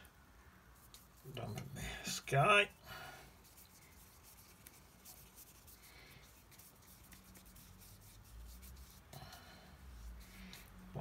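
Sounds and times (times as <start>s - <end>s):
paint brush rubbing on paper: 0.8s - 1.4s, 3.3s - 11.0s.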